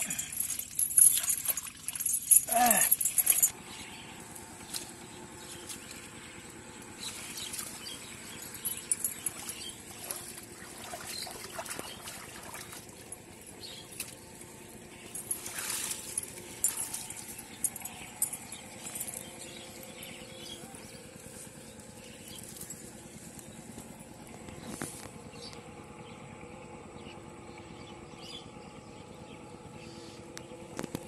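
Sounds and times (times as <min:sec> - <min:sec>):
light splashing in water: 0:07.0 - 0:14.4, 0:15.1 - 0:17.9.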